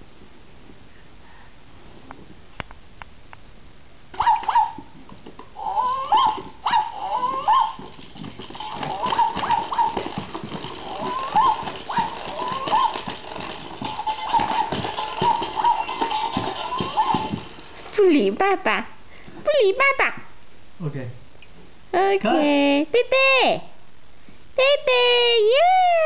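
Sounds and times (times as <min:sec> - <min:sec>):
baby screaming: 0:05.6 - 0:07.8, 0:10.9 - 0:13.1, 0:16.6 - 0:17.4.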